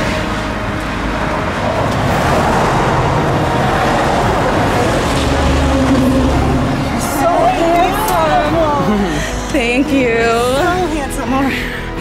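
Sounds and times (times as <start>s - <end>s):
passing cars rushing: 0.0s - 12.0s.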